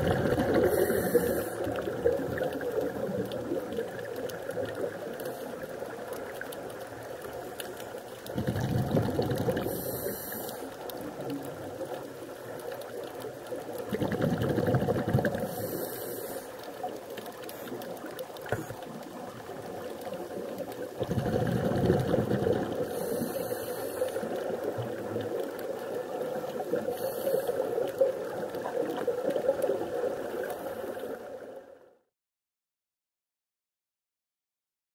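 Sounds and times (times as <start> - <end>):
exhaled bubbles: 0.0 - 7.4, 8.0 - 31.3
steady underwater hiss: 0.0 - 31.8
regulator inhale hiss: 0.5 - 1.9, 9.6 - 11.0, 15.4 - 18.8, 22.7 - 24.8, 26.7 - 28.0, 30.4 - 31.4.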